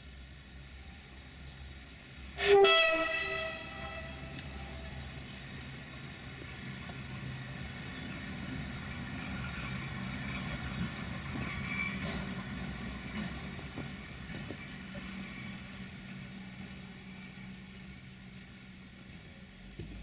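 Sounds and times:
train rumbling: 0:00.0 - 0:20.0
locomotive horn toot: 0:02.4 - 0:04.4.

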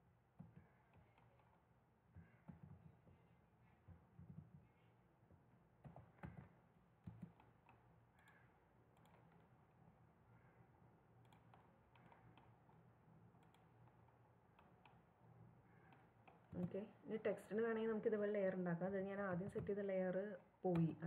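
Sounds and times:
computer mouse clicks: 0:00.5 - 0:01.6, 0:05.8 - 0:09.6, 0:10.3 - 0:15.1, 0:15.7 - 0:16.8.

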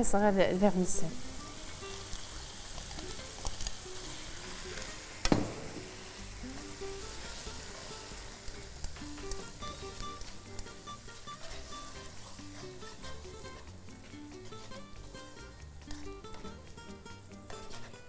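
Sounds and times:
noodles sizzling in a wok: 0:00.0 - 0:18.0
tongs scraping and clicking: 0:02.0 - 0:03.8, 0:08.5 - 0:17.9.

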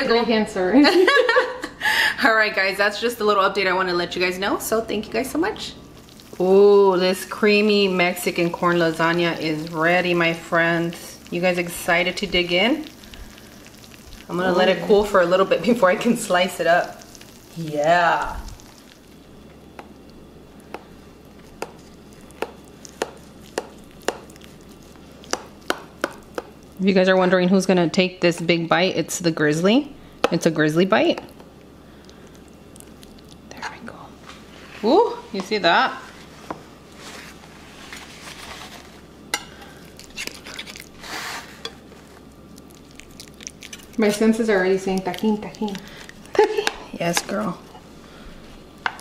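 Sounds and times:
utensil tapping glass dish: 0:22.4 - 0:24.3.

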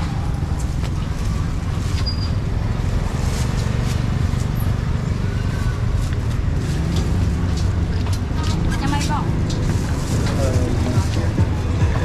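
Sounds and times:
traffic rumble: 0:00.0 - 0:12.0.

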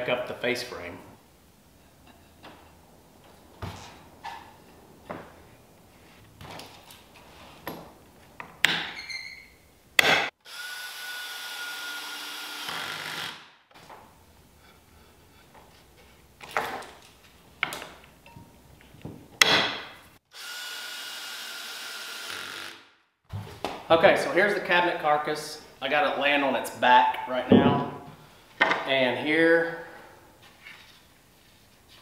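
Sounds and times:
cordless drill driving screws: 0:10.5 - 0:13.4, 0:20.3 - 0:22.8.

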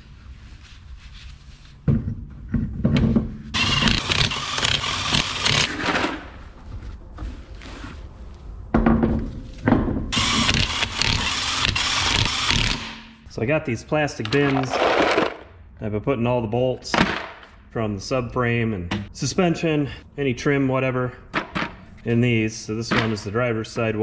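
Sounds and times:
impact wrench running: 0:03.6 - 0:05.8, 0:10.2 - 0:13.1.

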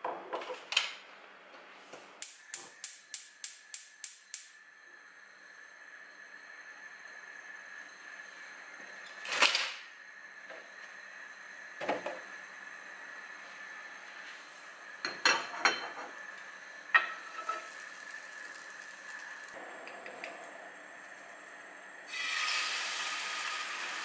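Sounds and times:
gas burner hissing: 0:01.9 - 0:24.0
gas igniter clicking: 0:02.2 - 0:04.5.

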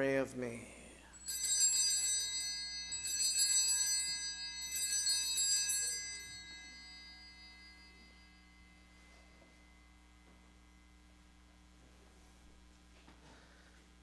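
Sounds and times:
altar bells ringing: 0:01.1 - 0:11.6.

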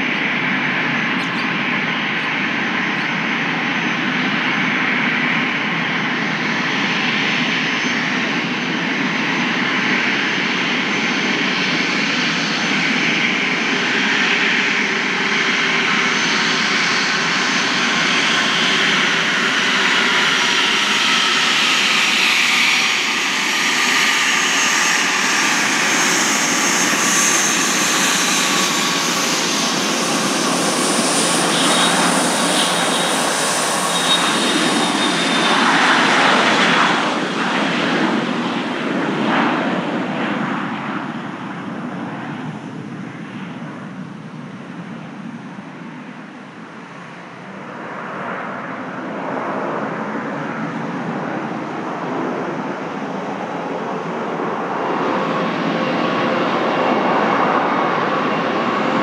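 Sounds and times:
jet engines with turbine whine: 0:00.0 - 0:59.0.

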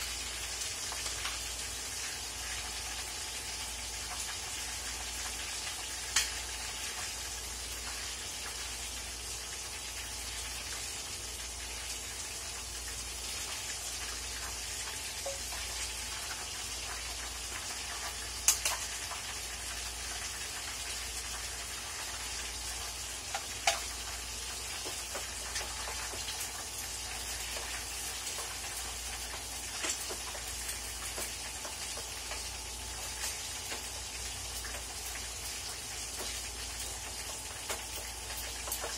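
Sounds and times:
food sizzling in a wok: 0:00.0 - 0:38.9
spatula clicking against pan: 0:18.4 - 0:18.9.

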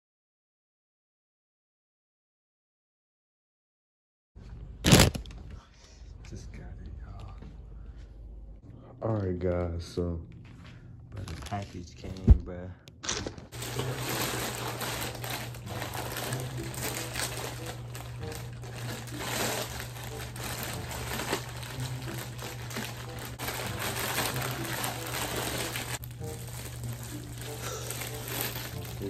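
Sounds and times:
plastic bag crinkling: 0:04.8 - 0:05.4, 0:11.2 - 0:12.2, 0:13.0 - 0:29.0.

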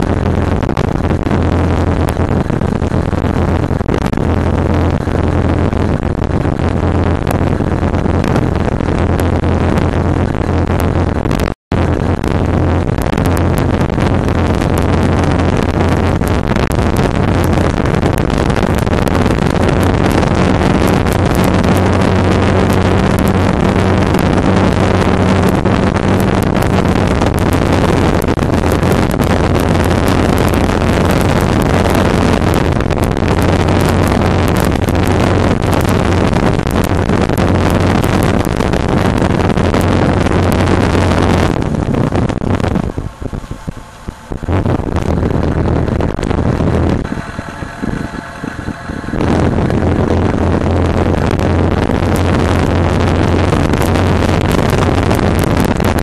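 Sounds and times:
wind rush on microphone: 0:00.0 - 0:56.0
motorcycle engine cruising: 0:12.3 - 0:56.0.

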